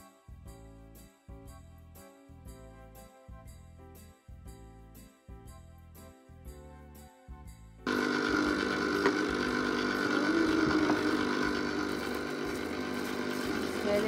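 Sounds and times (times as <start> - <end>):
soft music: 0.0 - 14.0
ice cream maker motor humming: 7.9 - 14.0.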